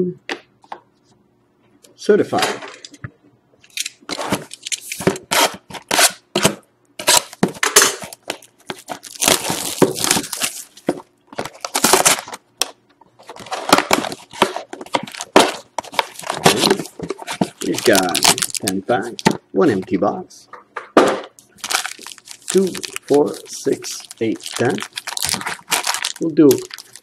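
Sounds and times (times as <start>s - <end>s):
plastic wrapper tearing and crinkling: 8.0s - 10.8s, 11.4s - 12.4s, 13.3s - 19.2s, 21.6s - 27.0s.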